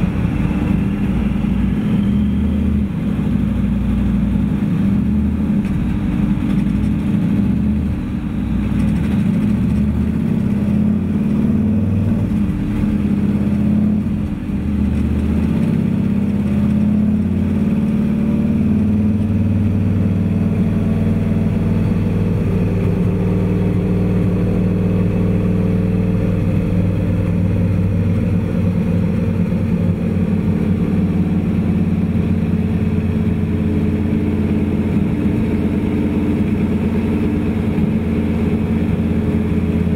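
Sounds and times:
motorcycle engine revving: 0.0s - 39.9s
motorcycle engine running steadily: 0.0s - 39.9s.

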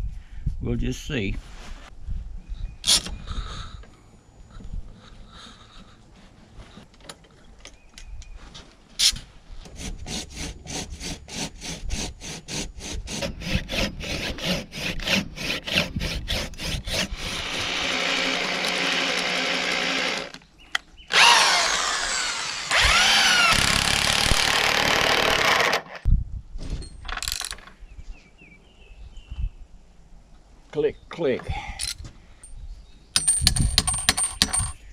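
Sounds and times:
drill boring into wood: 16.0s - 20.3s, 21.1s - 25.9s.

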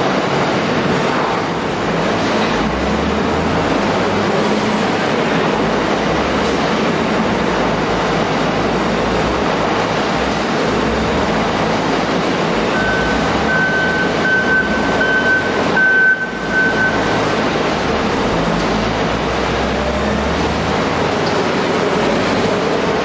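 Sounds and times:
diesel engine and machinery din: 0.0s - 23.0s
reversing alarm beeping: 12.7s - 17.3s.

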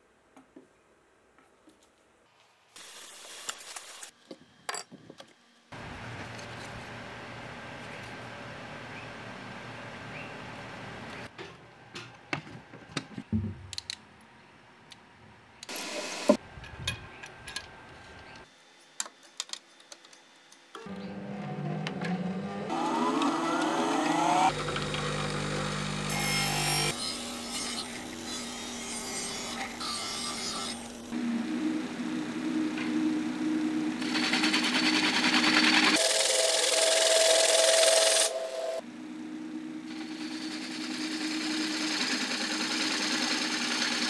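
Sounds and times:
wood lathe motor whining: 20.9s - 27.0s, 34.0s - 38.8s, 39.9s - 44.0s
lathe tool cutting wood: 21.1s - 31.1s, 34.0s - 38.8s, 39.9s - 44.0s.

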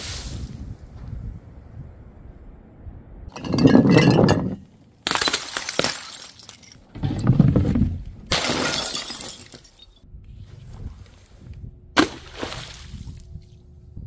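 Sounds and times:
glass bottles smashing: 3.3s - 7.3s, 8.3s - 10.0s
glass shards tinkling: 3.4s - 4.6s, 8.6s - 10.0s.

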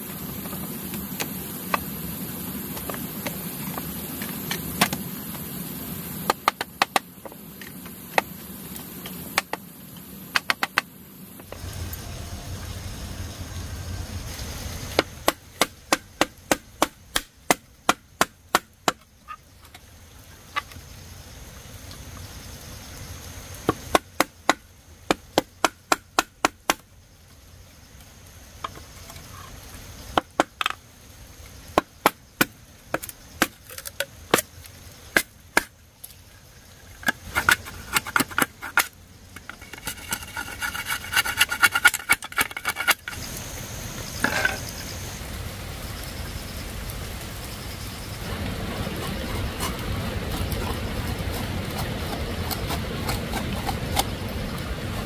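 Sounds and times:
machete chopping bamboo: 6.2s - 7.1s, 10.3s - 10.9s, 15.0s - 19.1s, 23.7s - 26.8s, 31.8s - 34.5s, 35.1s - 35.7s.

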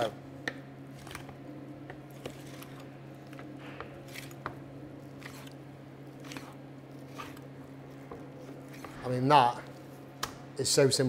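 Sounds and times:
steady low hum: 0.0s - 11.0s
knife scraping on bones: 5.1s - 9.1s.

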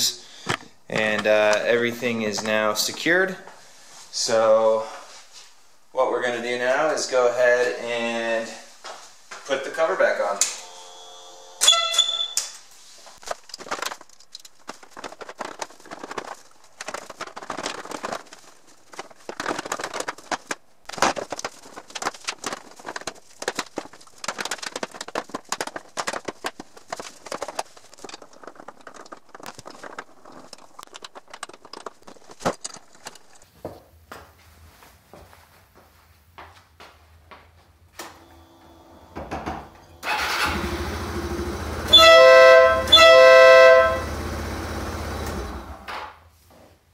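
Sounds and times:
plastic panels clicking and rattling: 0.4s - 1.6s, 13.2s - 33.5s
sharp ringing click: 11.6s - 12.6s.

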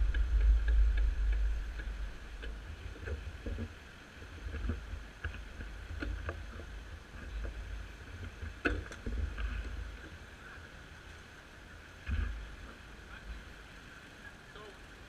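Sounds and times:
light clicks and taps: 0.0s - 10.2s
wind rumbling on microphone: 0.0s - 15.0s.

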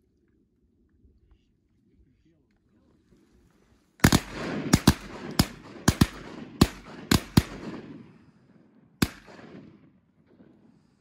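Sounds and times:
gunshot echo: 4.0s - 8.4s, 9.0s - 10.9s
shotguns firing: 4.0s - 8.4s, 9.0s - 10.6s.

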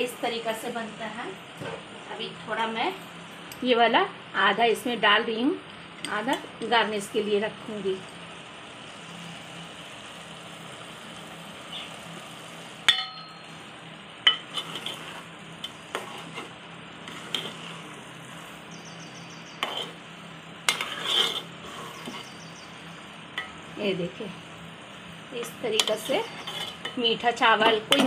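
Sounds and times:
low sizzle: 0.0s - 28.0s
spoon stirring rice in a pot: 14.3s - 17.8s, 19.6s - 20.0s, 20.7s - 22.4s, 25.7s - 27.0s.

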